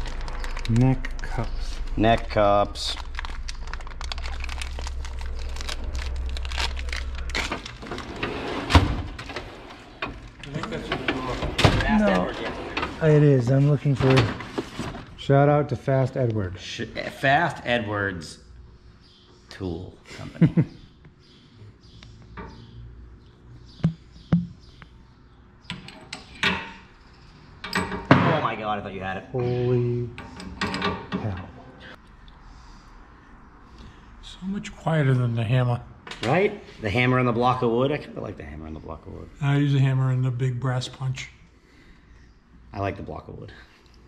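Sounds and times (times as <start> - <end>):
plastic packaging crinkling: 0.0 - 8.2
low steady hum: 0.0 - 26.0.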